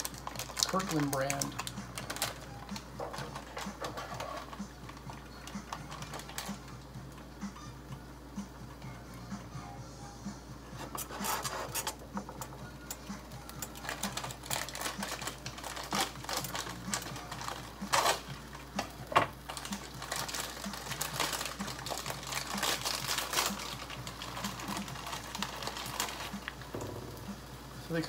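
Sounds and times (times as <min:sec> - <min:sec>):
plastic packaging crinkling: 0:00.0 - 0:06.8, 0:13.5 - 0:27.4
plastic packaging crackles: 0:00.0 - 0:07.2, 0:13.0 - 0:28.0.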